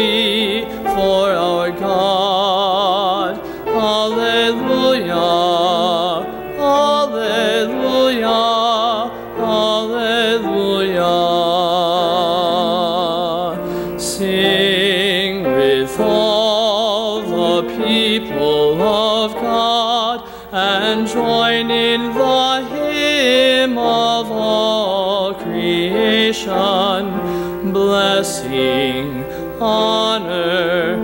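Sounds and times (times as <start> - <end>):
man singing with vibrato: 0.0 - 31.0.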